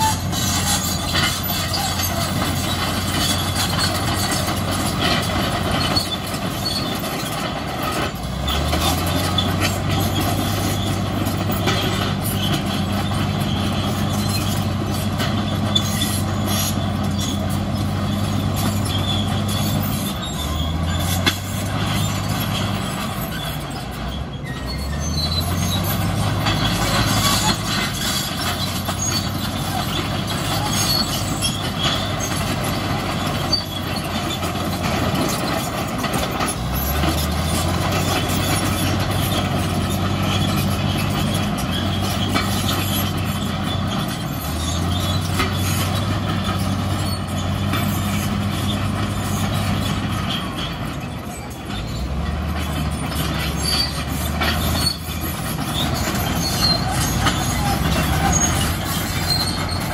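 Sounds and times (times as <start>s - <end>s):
bulldozer diesel engine revving: 0.0s - 59.9s
metal clattering and squealing: 0.0s - 59.9s.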